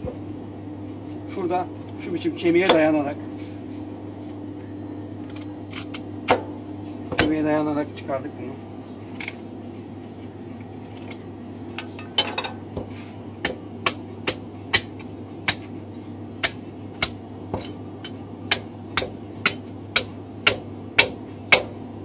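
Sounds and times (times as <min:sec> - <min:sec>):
meat cleaver chopping ribs: 0:02.5 - 0:03.0, 0:05.3 - 0:07.5, 0:12.7 - 0:15.8, 0:16.4 - 0:21.9.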